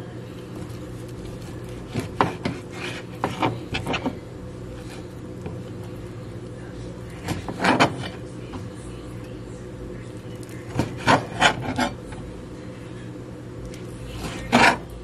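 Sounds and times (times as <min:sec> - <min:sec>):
knife scraping on cutting board: 0:01.9 - 0:04.1, 0:07.2 - 0:08.2, 0:10.9 - 0:12.0.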